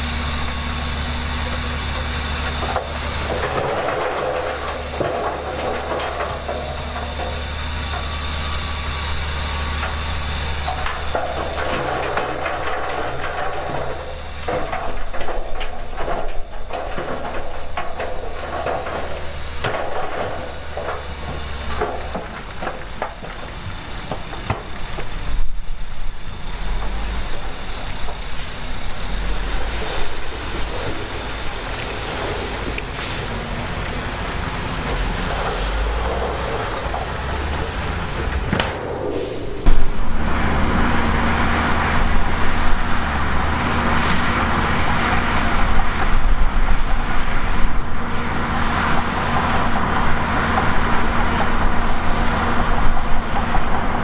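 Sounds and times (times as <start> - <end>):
diesel machinery running: 0.0 - 54.0.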